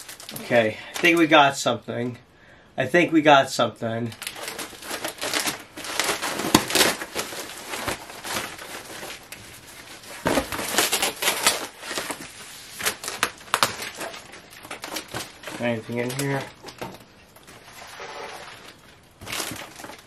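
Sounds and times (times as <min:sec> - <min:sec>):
cardboard box tearing: 0:04.2 - 0:09.3, 0:10.0 - 0:12.2.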